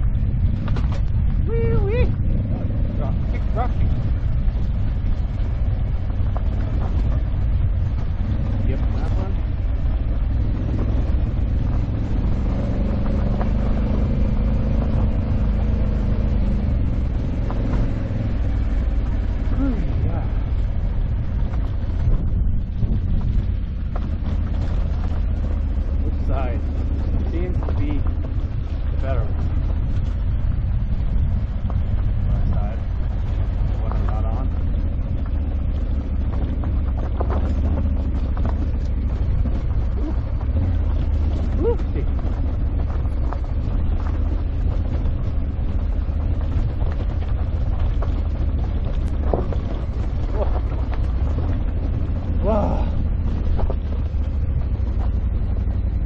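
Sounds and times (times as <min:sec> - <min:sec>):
gravel ticking under tyres: 0:00.0 - 0:56.0
motorcycle engine running: 0:00.0 - 0:56.0
wind noise on microphone: 0:00.0 - 0:56.0.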